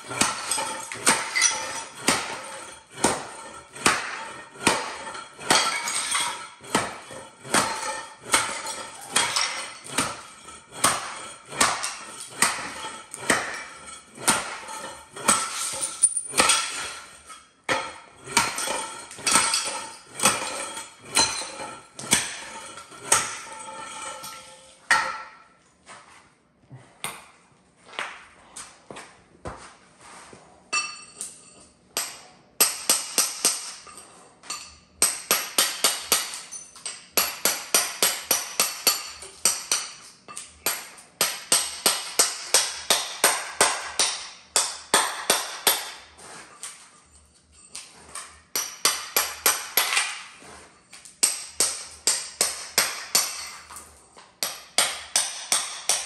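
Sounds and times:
hammer blows with metallic ring: 30.7s - 46.1s.

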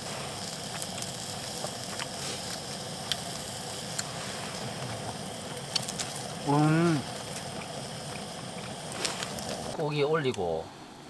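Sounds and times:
beef sizzling with pops: 0.0s - 10.3s.

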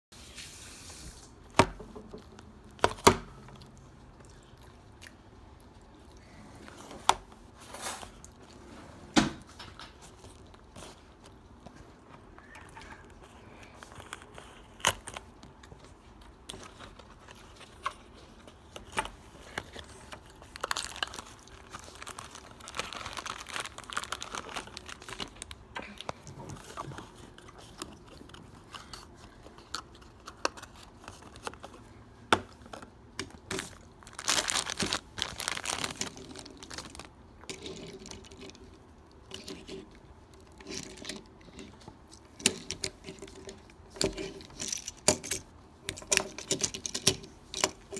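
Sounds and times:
crinkling plastic: 9.9s - 47.9s.

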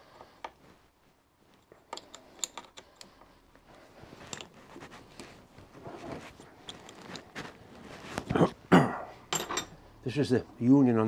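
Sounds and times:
handling and rustling: 0.0s - 8.6s.

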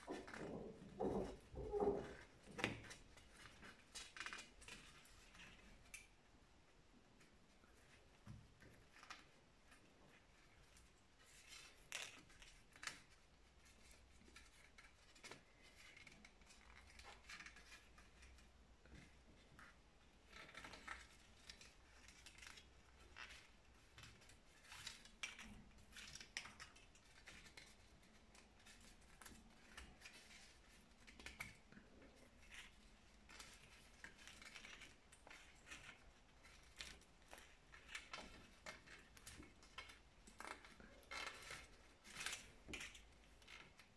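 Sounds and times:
twine rustling and scratching: 0.0s - 43.9s.

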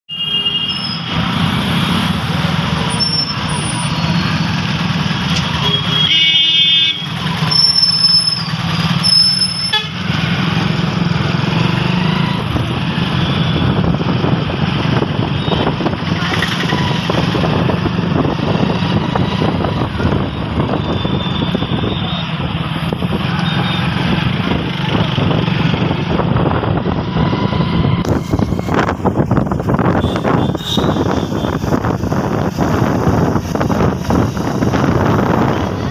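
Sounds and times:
motorcycle road noise: 0.1s - 35.9s
vehicle horn: 5.5s - 7.2s, 9.1s - 10.0s, 29.9s - 31.6s.

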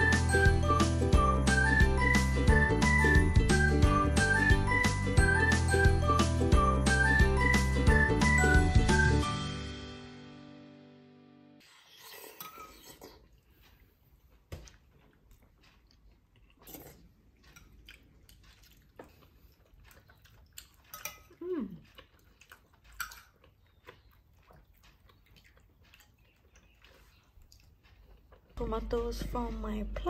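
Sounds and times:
dishes and utensils clicking: 20.9s - 21.3s.

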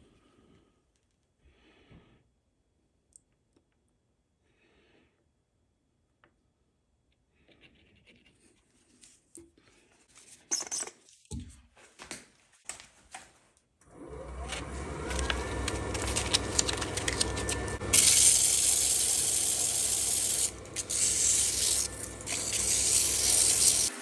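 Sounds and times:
wood lathe whine and hum: 13.9s - 24.0s
sandpaper rubbing hiss: 18.0s - 24.0s.

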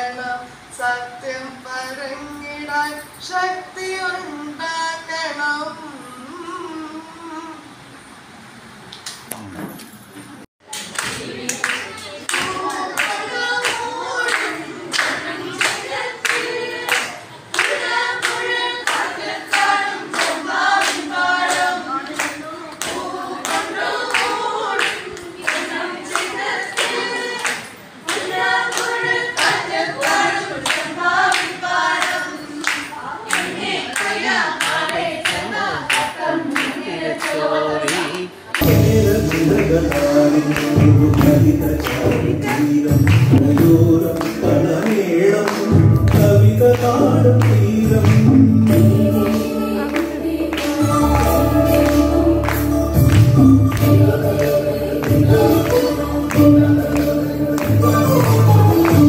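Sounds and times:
hand-clapping: 10.7s - 59.0s
women singing in unison: 11.1s - 38.4s, 48.3s - 59.0s.

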